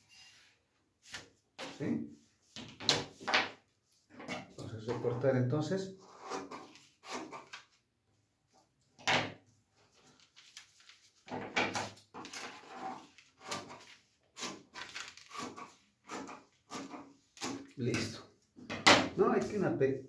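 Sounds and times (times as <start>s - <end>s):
paper rustling: 9.8s - 16.6s.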